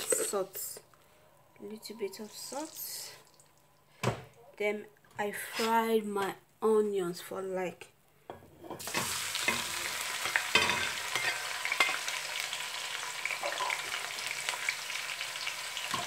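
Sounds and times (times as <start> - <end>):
onions sizzling in oil: 8.8 - 16.0.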